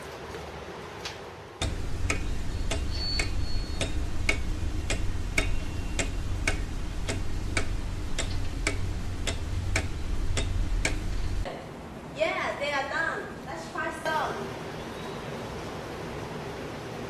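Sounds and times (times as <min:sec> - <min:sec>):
clockwork ticking: 0:01.6 - 0:11.5
low even hum: 0:01.6 - 0:12.1.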